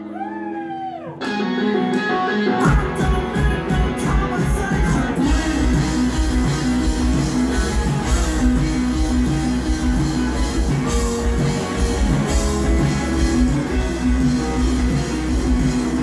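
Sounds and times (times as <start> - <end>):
bass guitar: 0.0 - 16.0
electric guitars: 0.0 - 16.0
drum kit: 1.2 - 16.0.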